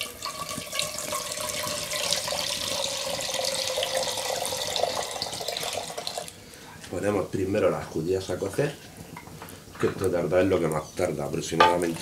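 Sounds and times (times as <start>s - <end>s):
water pouring into a pot: 0.0s - 6.4s.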